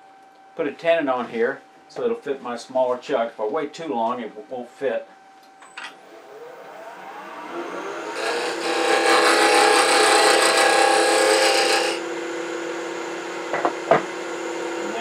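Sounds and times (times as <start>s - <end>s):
wood lathe humming: 6.0s - 15.0s
tool cutting spinning wood: 6.1s - 12.4s.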